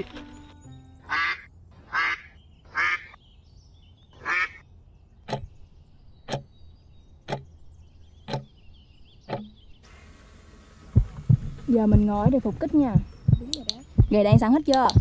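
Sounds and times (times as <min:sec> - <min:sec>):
duck quacks: 0:01.1 - 0:03.2, 0:04.2 - 0:04.6
clock ticking: 0:05.3 - 0:05.6, 0:06.2 - 0:06.5, 0:07.2 - 0:07.6, 0:08.2 - 0:08.6, 0:09.3 - 0:09.6, 0:11.0 - 0:15.0.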